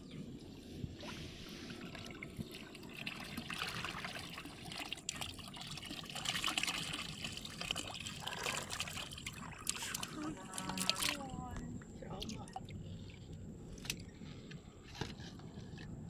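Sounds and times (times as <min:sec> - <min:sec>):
water pouring and trickling: 0:00.5 - 0:14.2.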